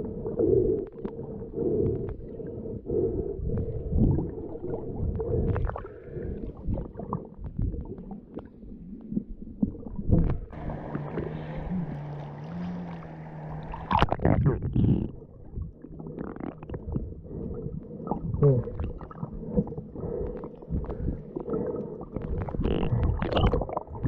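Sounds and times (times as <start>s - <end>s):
airy sea noise: 0.0s - 9.3s, 10.4s - 24.0s
muffled underwater rumbling: 0.0s - 24.0s
steady low hum: 10.5s - 23.1s.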